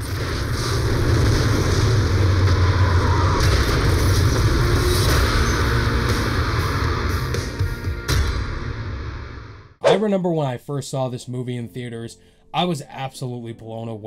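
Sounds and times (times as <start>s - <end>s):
low rumble of explosions: 0.0s - 4.0s.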